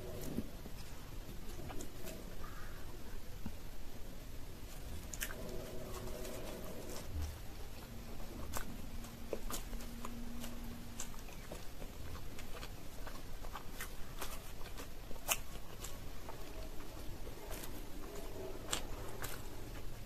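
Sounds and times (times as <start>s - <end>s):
fingers tearing pastry: 4.6s - 20.0s
chewing with wet mouth clicks: 4.7s - 20.0s.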